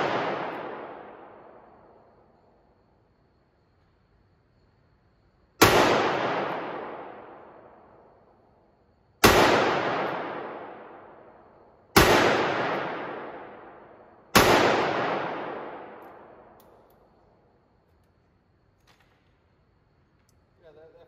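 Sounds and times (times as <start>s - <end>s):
revolver gunshots with echo: 0.0s - 2.0s, 5.6s - 7.9s, 9.2s - 16.6s.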